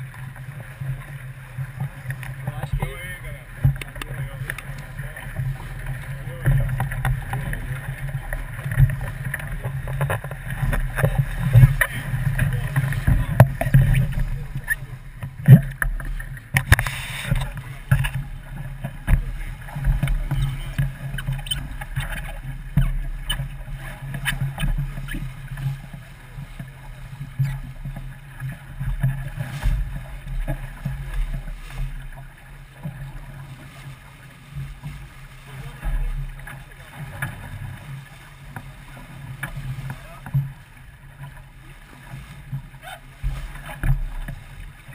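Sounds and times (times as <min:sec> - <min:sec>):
water slapping against hull: 0:00.0 - 0:44.9.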